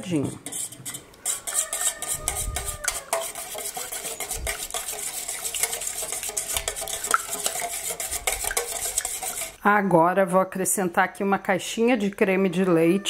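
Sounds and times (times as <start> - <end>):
whisk beating in metal bowl: 0.4 - 9.6.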